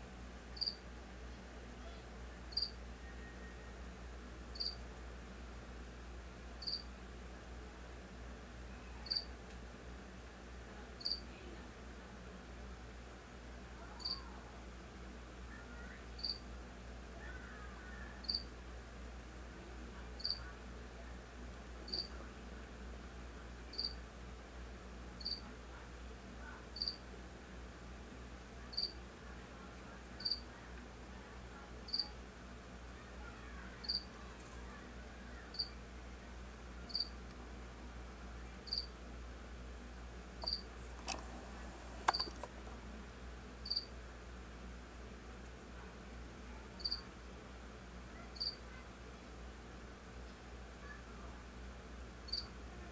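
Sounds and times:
insect chirping: 0:00.6 - 0:00.8, 0:02.5 - 0:02.7, 0:04.6 - 0:04.8, 0:06.6 - 0:06.9, 0:11.0 - 0:11.2, 0:16.2 - 0:16.4, 0:18.2 - 0:18.4, 0:20.2 - 0:20.4, 0:23.7 - 0:24.0, 0:25.2 - 0:25.4, 0:26.8 - 0:27.0, 0:28.7 - 0:29.0, 0:30.2 - 0:30.4, 0:33.8 - 0:34.1, 0:35.5 - 0:35.7, 0:36.9 - 0:37.1, 0:38.7 - 0:38.9, 0:40.4 - 0:40.6, 0:43.6 - 0:43.9, 0:48.4 - 0:48.6, 0:52.3 - 0:52.5
sharp clicks: 0:42.0 - 0:42.6.

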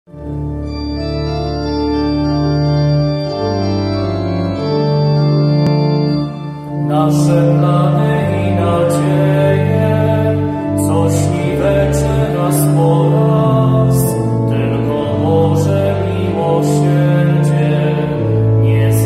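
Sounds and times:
organ playing sustained chords: 0:00.1 - 0:19.0.

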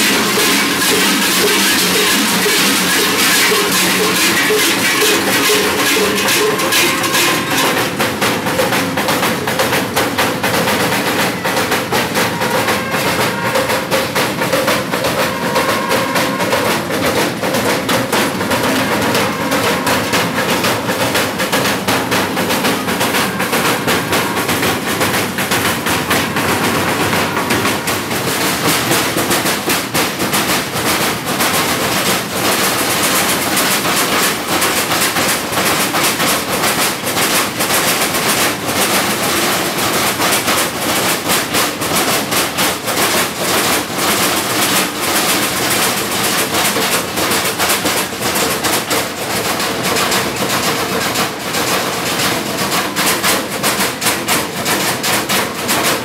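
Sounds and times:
large metal bells clanging: 0:00.0 - 0:37.6.

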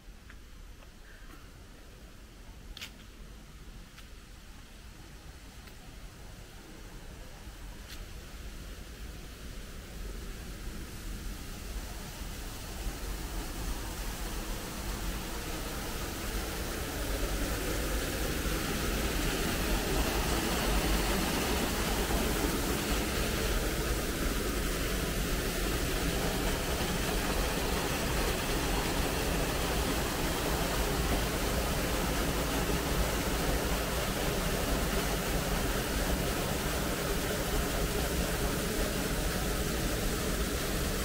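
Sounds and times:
waterfall rushing down rocks: 0:09.9 - 0:41.0.

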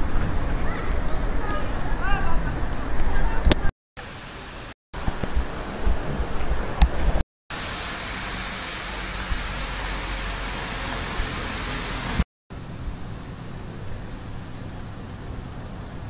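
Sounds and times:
distant traffic hiss: 0:07.5 - 0:15.8.

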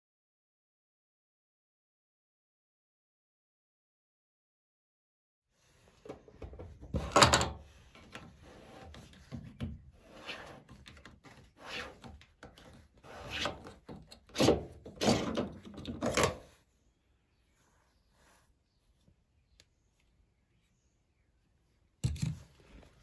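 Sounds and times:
plastic filter cap scraping: 0:10.1 - 0:16.5.

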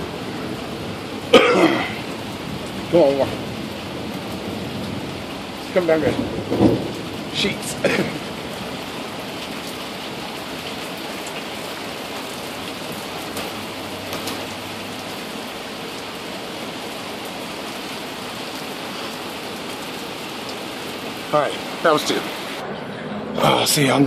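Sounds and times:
steady rain falling: 0:00.0 - 0:24.0
loud raindrop striking close: 0:01.2 - 0:15.2.

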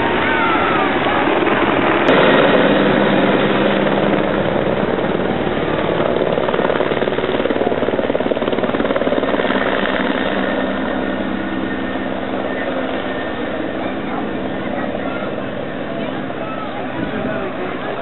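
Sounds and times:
helicopter engine whine: 0:00.0 - 0:18.0
helicopter rotor beating: 0:00.0 - 0:18.0.

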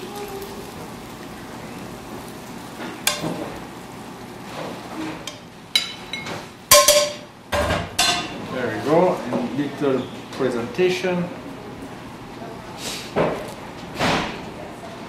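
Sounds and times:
cookware knocking and clinking: 0:05.8 - 0:08.3.

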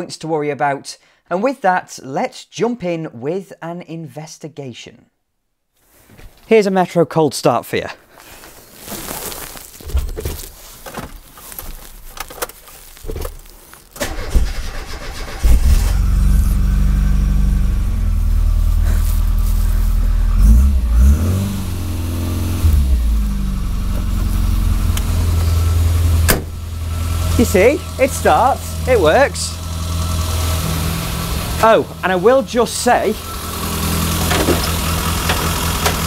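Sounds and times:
starter motor cranking: 0:14.0 - 0:16.6, 0:33.2 - 0:36.0
car engine idling: 0:14.0 - 0:36.0.

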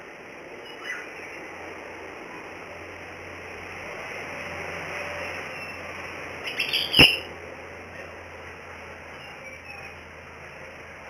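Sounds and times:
steady hiss: 0:00.0 - 0:09.2
bird chirping: 0:00.6 - 0:01.5, 0:06.4 - 0:07.3.

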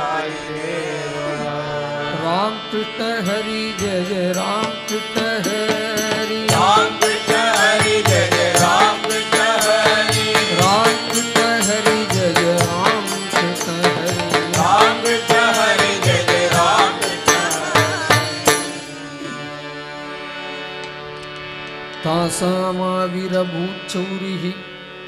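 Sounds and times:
sustained tone: 0:00.0 - 0:20.5
gliding devotional melody: 0:00.0 - 0:25.0
steady percussion beat: 0:04.5 - 0:18.8.

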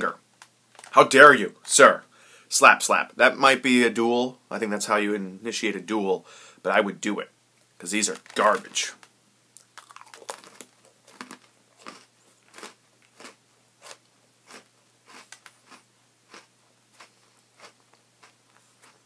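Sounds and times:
cookie crunching while chewed: 0:09.6 - 0:19.0.

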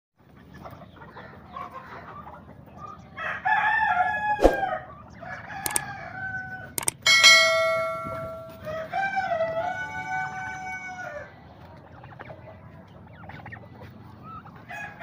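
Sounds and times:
chickens clucking: 0:00.2 - 0:15.0
rooster crowing: 0:03.2 - 0:06.8, 0:08.4 - 0:11.3
sharp clicks: 0:05.6 - 0:05.8, 0:06.8 - 0:07.0
ringing bell chime: 0:06.9 - 0:08.8.

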